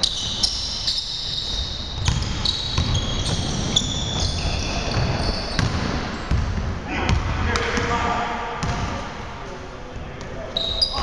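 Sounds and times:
sneakers squeaking on wooden floor: 0.0 - 8.0, 10.5 - 11.0.

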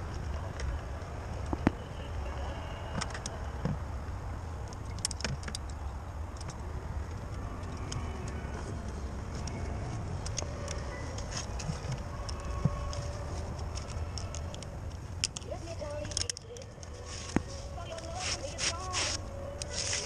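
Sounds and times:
carabiners clicking and clinking: 4.6 - 20.0.

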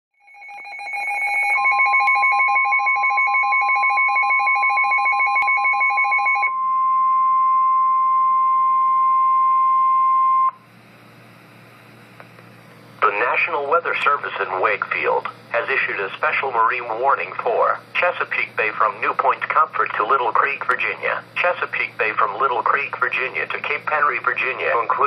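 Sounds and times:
pulsing two-pitch alarm beep: 0.2 - 10.6
steady warning tone: 0.2 - 10.9
faint radio hiss: 10.6 - 25.0.

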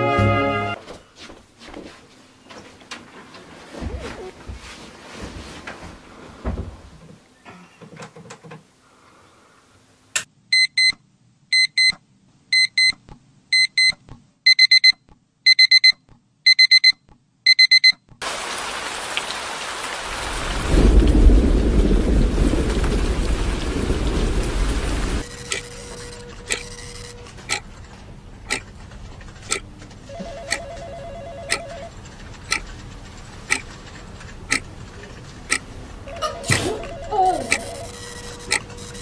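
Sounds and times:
alarm clock double beeps: 10.5 - 18.0, 25.2 - 27.6, 36.1 - 39.0
steady rain: 18.2 - 26.6.

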